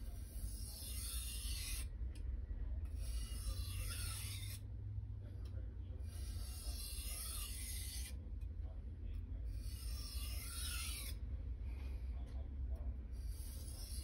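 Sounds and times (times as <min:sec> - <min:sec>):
knife scraping on whetstone: 0:00.2 - 0:01.8, 0:03.0 - 0:04.6, 0:06.1 - 0:08.1, 0:09.6 - 0:11.2, 0:13.3 - 0:14.0.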